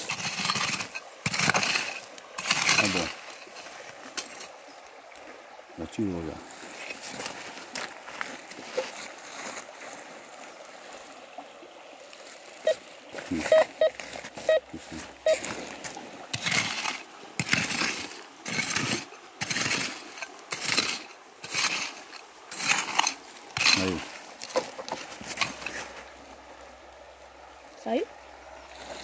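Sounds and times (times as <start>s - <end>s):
hand tool scraping gravelly soil: 0.0s - 4.6s, 6.5s - 9.7s, 12.7s - 26.1s
metal detector beeps: 13.4s - 15.5s.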